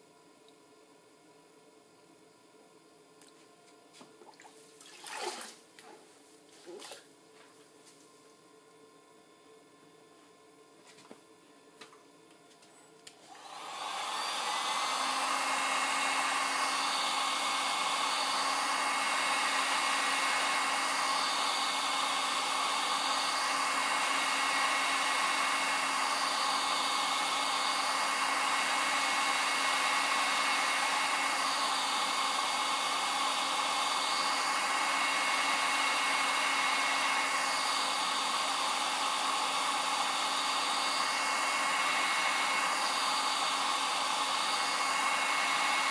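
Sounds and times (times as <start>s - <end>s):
heat gun blowing with hum: 13.1s - 45.9s.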